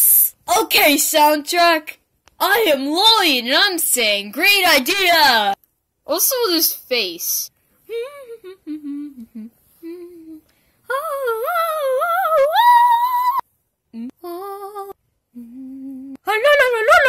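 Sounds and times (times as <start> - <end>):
person humming: 7.9 - 16.3.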